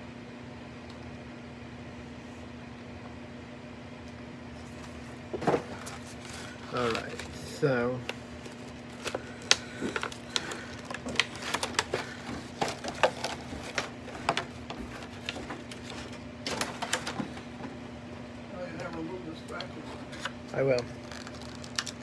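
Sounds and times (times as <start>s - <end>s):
card packaging clicking and crinkling: 4.8s - 17.7s, 18.9s - 22.0s.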